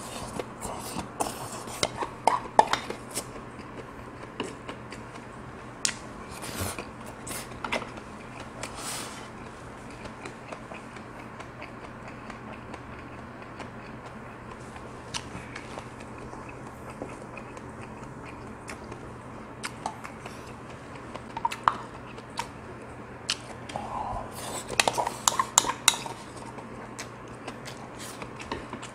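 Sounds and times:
person chewing: 5.9 - 28.9.

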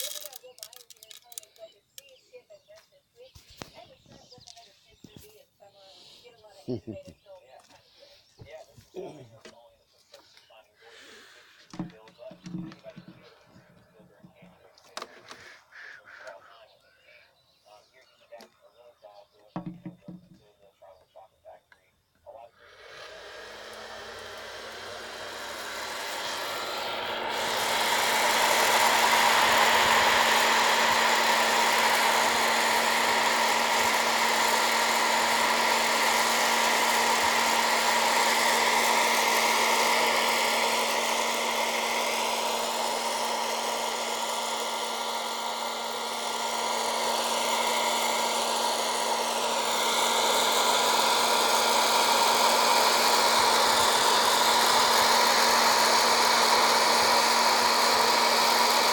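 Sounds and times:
popcorn popper fan rushing air: 0.0 - 1.6, 10.8 - 16.4, 22.6 - 58.9.

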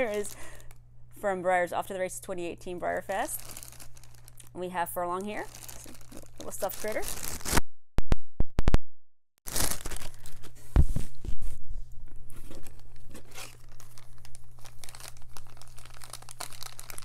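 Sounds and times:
plastic bags crinkling: 0.0 - 0.8, 3.0 - 7.6, 9.5 - 10.6, 12.4 - 17.0.

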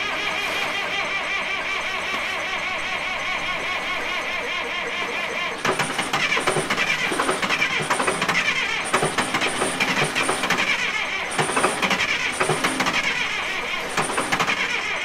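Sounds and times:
model excavator mechanical clatter: 0.0 - 15.0.

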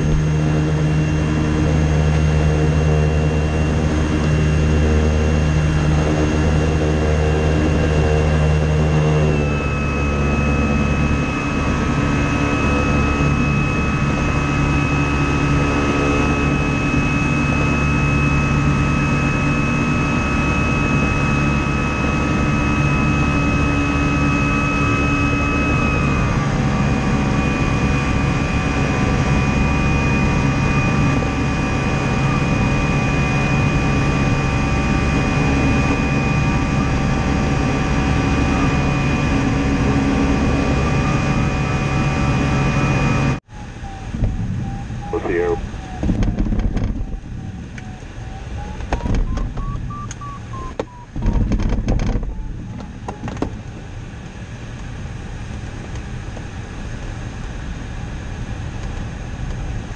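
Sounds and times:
steady electronic tones: 43.0 - 53.2.

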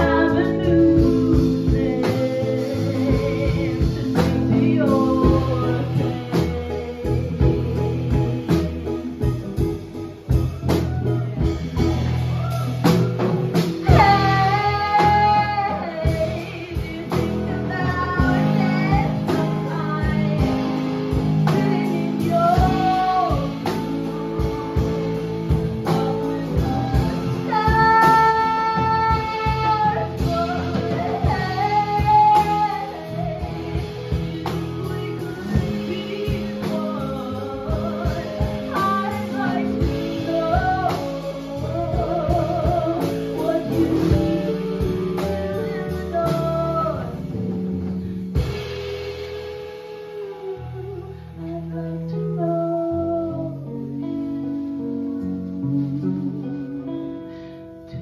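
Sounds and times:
woman singing long notes: 0.0 - 9.7, 25.8 - 47.3
upright double bass: 0.0 - 49.6
drums: 0.0 - 58.0
electric guitar: 0.0 - 58.0.

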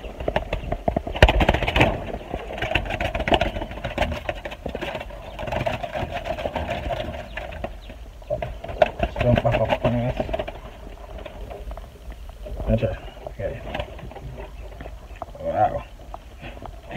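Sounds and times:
pigeon wings flapping: 0.0 - 7.6
bird scuffling and rustling: 0.0 - 16.9.

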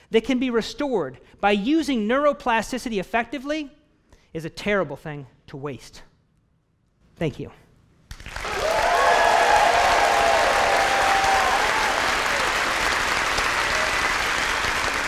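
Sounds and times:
audience applauding: 8.1 - 15.0
people cheering: 8.2 - 15.0.

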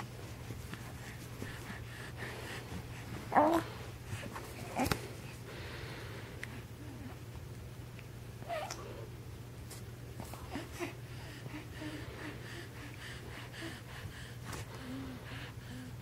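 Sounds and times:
steady low hum: 0.0 - 16.0
baby cooing and breathing: 1.0 - 5.3, 10.2 - 16.0.

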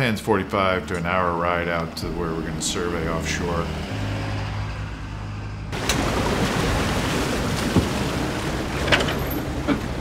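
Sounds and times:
truck engine hum: 0.0 - 10.0
rushing wash of water: 5.8 - 10.0.

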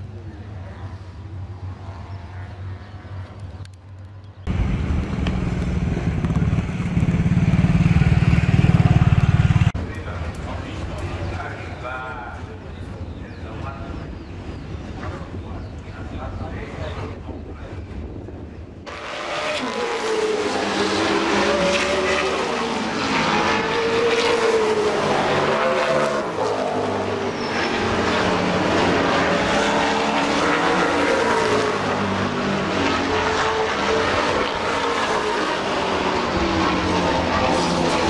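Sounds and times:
race car engines accelerating: 18.9 - 38.0.

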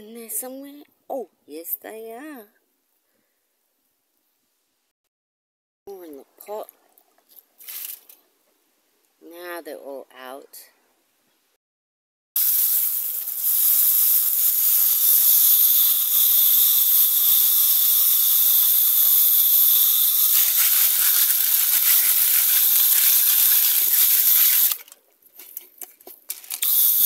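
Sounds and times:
hose spraying water on rocks: 12.4 - 24.8.

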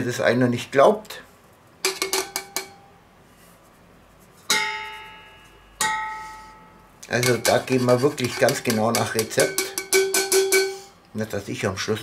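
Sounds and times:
metal bowls knocking: 1.8 - 2.9, 4.5 - 6.2, 7.1 - 10.9
sieve tapping: 7.0 - 10.8.

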